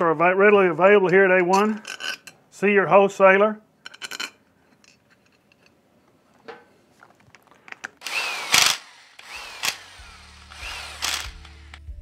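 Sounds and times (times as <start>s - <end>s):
electric power driver whining: 8.0s - 12.0s.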